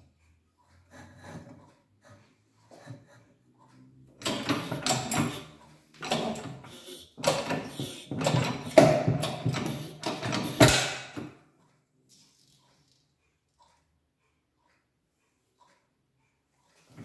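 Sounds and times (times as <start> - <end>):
hydraulic press creaking and hissing: 4.2 - 11.3.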